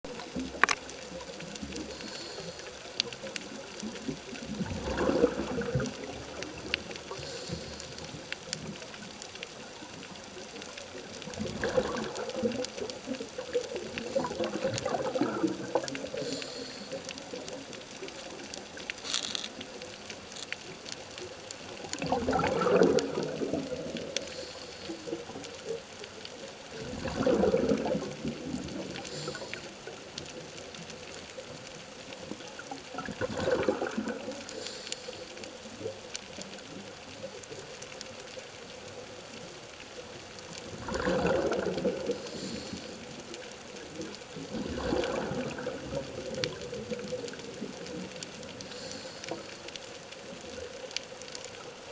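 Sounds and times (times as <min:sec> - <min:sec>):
faint scattered clicks: 0:00.1 - 0:51.9
faint hiss of inhalation: 0:01.8 - 0:03.0, 0:07.1 - 0:08.2, 0:16.2 - 0:17.3, 0:24.2 - 0:25.2, 0:29.0 - 0:29.8, 0:34.5 - 0:35.5, 0:42.1 - 0:43.1, 0:48.6 - 0:49.7
bubbling regulator exhalation: 0:04.4 - 0:07.8, 0:11.3 - 0:16.8, 0:21.9 - 0:24.4, 0:26.8 - 0:29.7, 0:33.0 - 0:34.5, 0:40.6 - 0:43.2, 0:44.4 - 0:47.6.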